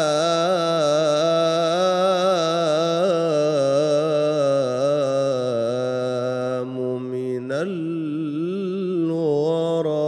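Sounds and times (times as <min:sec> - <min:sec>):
man singing devotional chant: 0:00.0 - 0:10.0.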